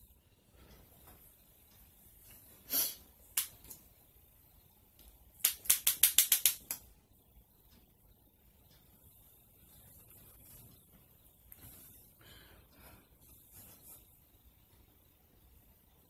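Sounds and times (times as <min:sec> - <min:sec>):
sharp clicks of makeup items: 0:05.0 - 0:06.9.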